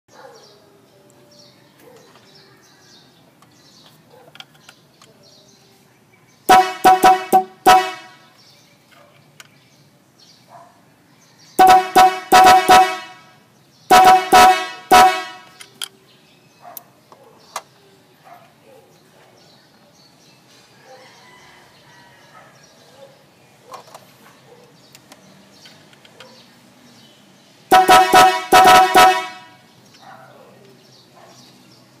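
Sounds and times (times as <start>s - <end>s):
loud electric horn blasts: 6.5s - 8.2s, 11.6s - 15.6s, 27.7s - 29.6s.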